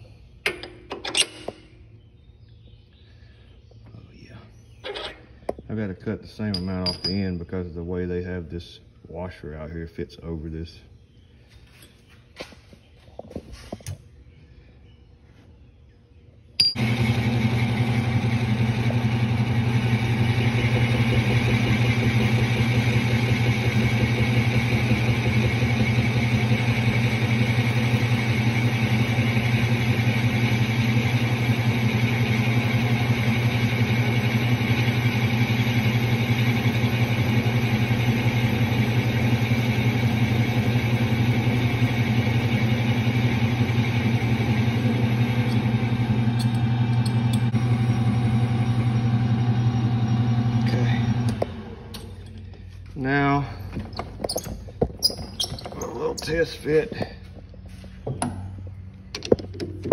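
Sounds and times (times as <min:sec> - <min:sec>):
metal lathe running: 0:16.7 - 0:52.4.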